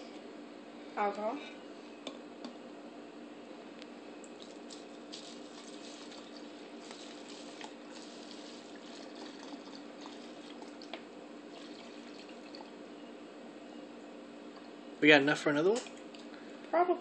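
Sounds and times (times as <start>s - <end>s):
liquid pouring into bottle: 4.3s - 12.8s.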